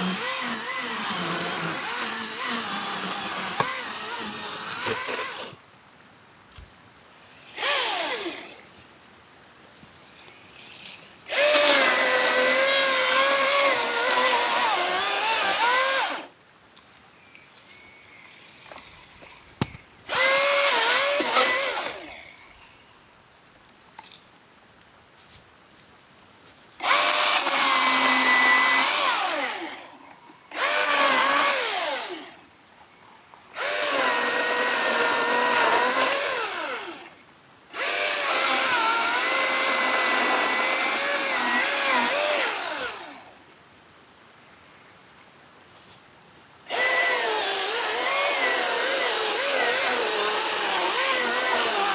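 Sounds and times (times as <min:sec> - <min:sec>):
electric chainsaw cutting wood: 0:00.0 - 0:05.6, 0:07.4 - 0:08.8, 0:10.8 - 0:16.3, 0:20.1 - 0:22.3, 0:26.8 - 0:32.4, 0:33.6 - 0:37.2, 0:37.8 - 0:43.4, 0:46.7 - 0:51.9.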